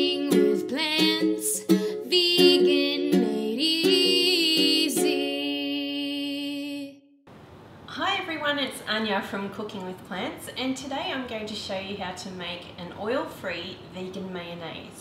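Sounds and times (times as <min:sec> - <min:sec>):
person singing: 0:00.0 - 0:07.0
plucked-string music: 0:00.0 - 0:07.0.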